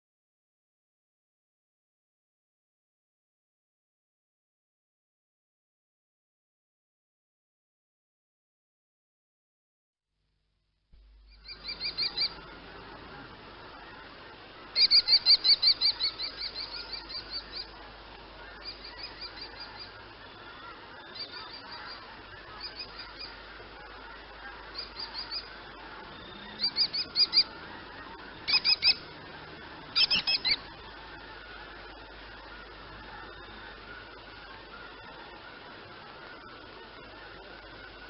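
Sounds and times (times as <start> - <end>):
steady background hiss: 11.0 - 38.0
kestrel calling: 11.3 - 38.0.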